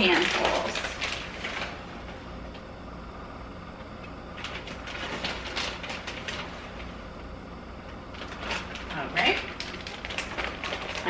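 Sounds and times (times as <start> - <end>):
plastic bag crinkling: 0.0 - 1.9, 4.3 - 7.0, 8.1 - 11.0
steady low hum: 0.0 - 11.0.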